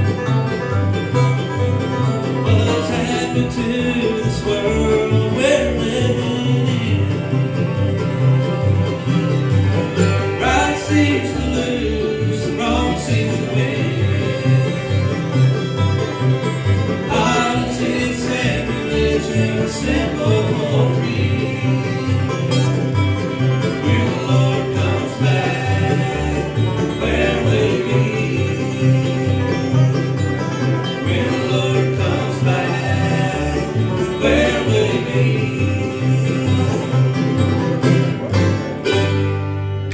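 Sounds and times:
acoustic guitars: 0.0 - 39.9
banjo: 0.0 - 39.9
fiddle: 0.0 - 39.9.

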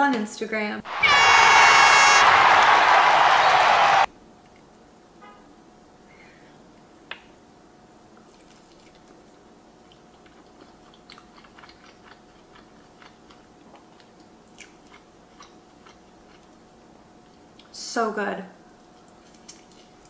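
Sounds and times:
faint chewing: 8.2 - 17.8, 18.9 - 20.0.

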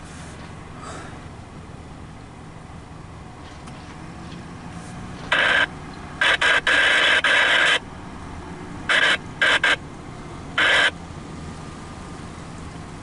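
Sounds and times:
freight train rumble: 0.0 - 6.4
locomotive horn blasts: 8.9 - 9.8, 10.6 - 10.9.

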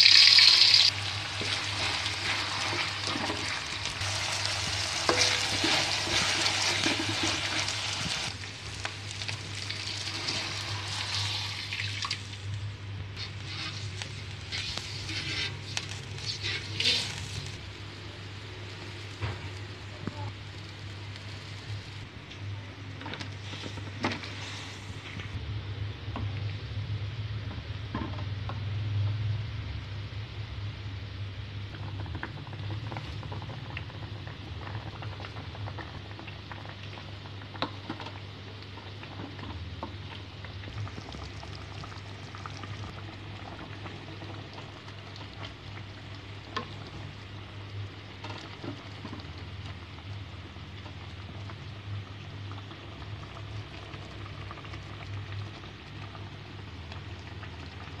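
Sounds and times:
pot boiling and bubbling: 0.0 - 58.0.

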